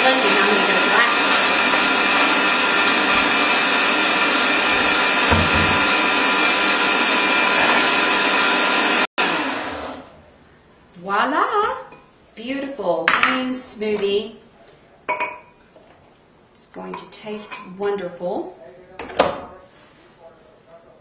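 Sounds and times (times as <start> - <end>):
blender running: 0.0 - 10.2.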